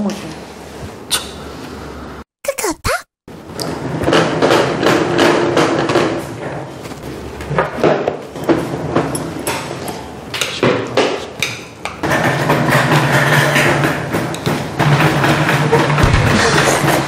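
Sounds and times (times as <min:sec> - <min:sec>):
knocking and clattering: 0:03.8 - 0:06.7, 0:10.6 - 0:17.0.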